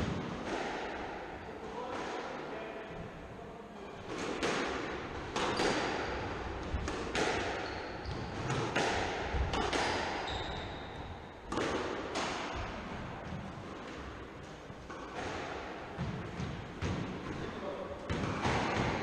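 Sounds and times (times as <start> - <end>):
racket hitting ball: 0.0 - 2.3, 4.0 - 17.4, 18.0 - 19.0
ball striking walls: 4.1 - 17.4
shoes squeaking on wooden floor: 7.6 - 8.6, 10.2 - 11.2.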